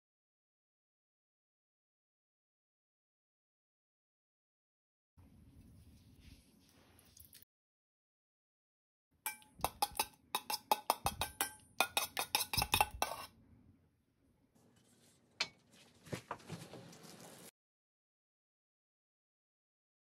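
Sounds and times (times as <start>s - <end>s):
metal spoon clinking in steel bowl: 9.3s - 13.3s.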